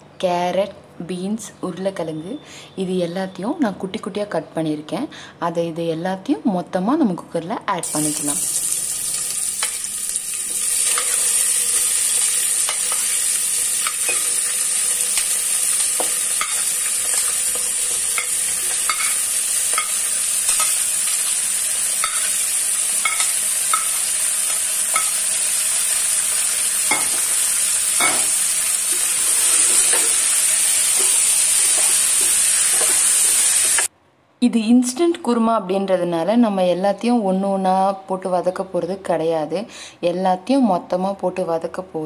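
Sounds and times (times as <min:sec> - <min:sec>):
vegetables sizzling in oil: 0:07.8 - 0:33.9.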